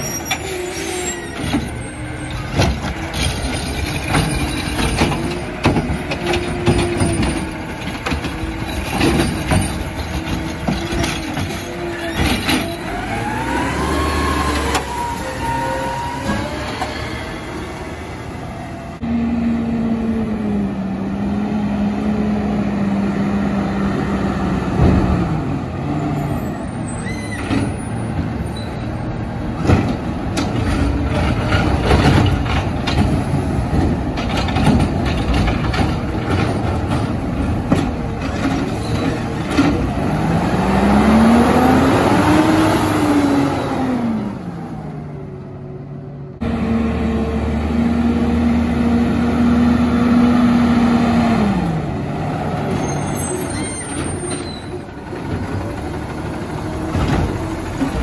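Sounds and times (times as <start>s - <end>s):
cart clanking and banging: 0.0s - 18.5s, 24.5s - 44.3s, 52.4s - 58.0s
garbage truck diesel engine: 0.0s - 58.0s.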